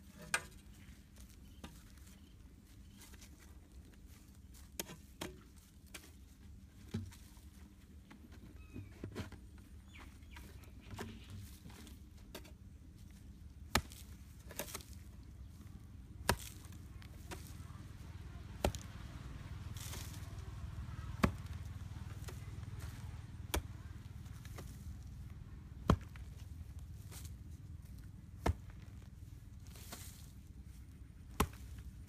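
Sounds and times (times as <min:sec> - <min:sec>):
hoe striking hard soil: 0:13.6 - 0:15.2, 0:16.1 - 0:18.0, 0:18.6 - 0:24.8, 0:25.8 - 0:27.3.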